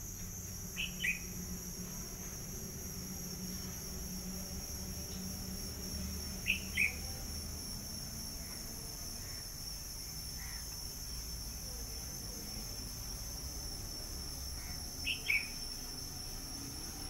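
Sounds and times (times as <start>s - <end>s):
insects chorus: 0.0s - 17.0s.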